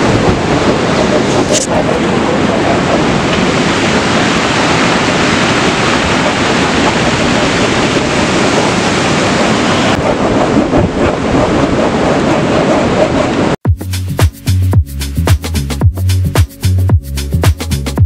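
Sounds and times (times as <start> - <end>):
ocean surf breaking: 0.0 - 13.6
wind blowing on microphone: 0.0 - 13.6.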